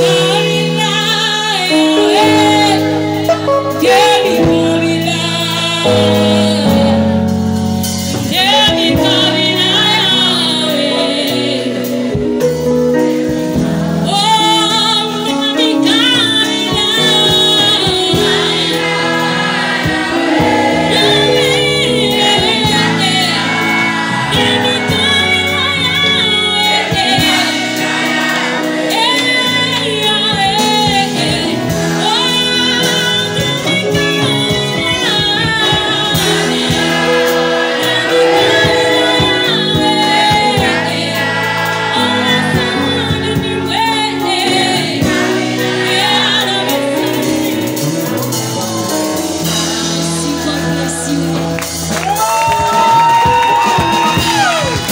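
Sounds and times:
choir voices singing along: 0.0 - 7.3, 16.2 - 52.2
live band with drums and keyboard: 0.0 - 54.9
woman singing lead: 0.0 - 54.9.

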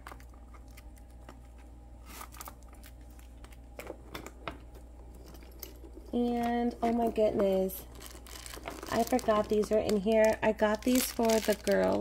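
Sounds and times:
low steady hum: 0.0 - 12.0
wallet and handbag rustling: 5.2 - 12.0.

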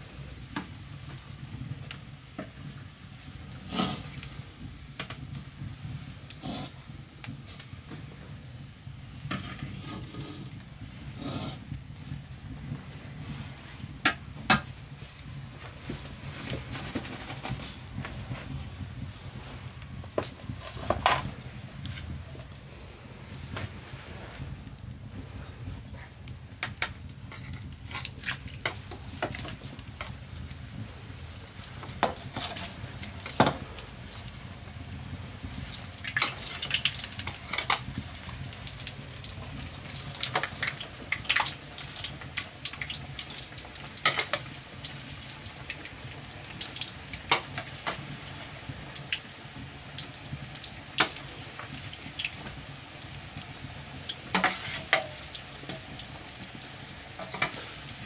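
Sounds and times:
dough sizzling in oil: 0.0 - 58.0
metal ladle scraping a wok: 9.3 - 10.6, 11.2 - 11.6, 54.4 - 55.2.

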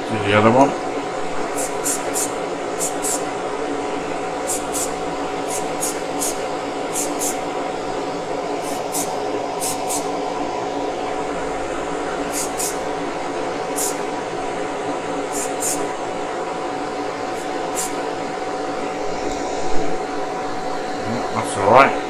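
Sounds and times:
extractor fan humming: 0.0 - 22.0
paint spraying bursts: 1.4 - 3.4, 4.4 - 7.6, 8.6 - 10.2, 12.2 - 12.9, 13.6 - 14.2, 15.2 - 15.9, 17.3 - 18.0.

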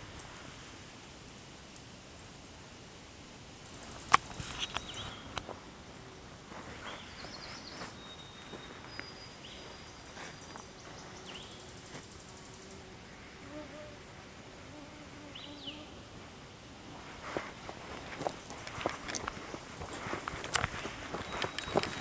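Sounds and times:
faint bird chirps: 4.4 - 5.4, 6.8 - 11.8, 21.1 - 22.0
insect buzzing: 9.5 - 16.2.

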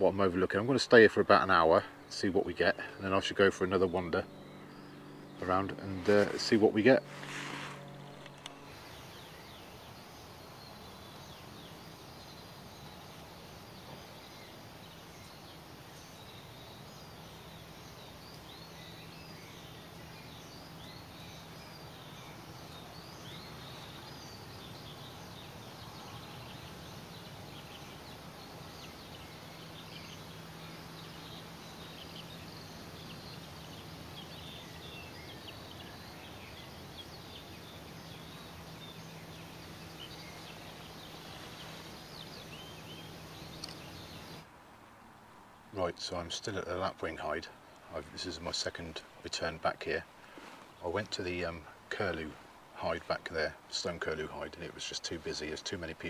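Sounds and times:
low hum: 0.0 - 44.5
distant birdsong: 0.0 - 56.0.

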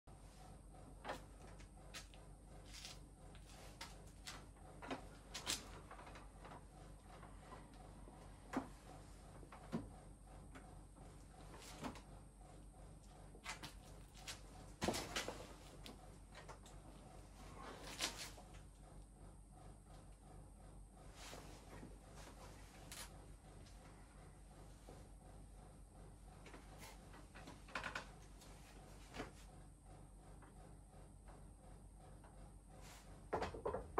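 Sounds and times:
wooden joints clicking and knocking: 33.4 - 33.9.

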